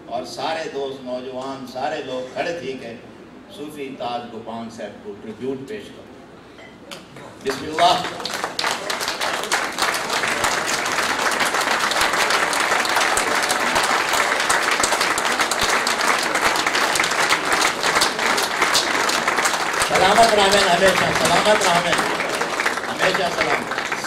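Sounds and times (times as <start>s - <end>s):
audience applauding: 7.4s - 24.0s.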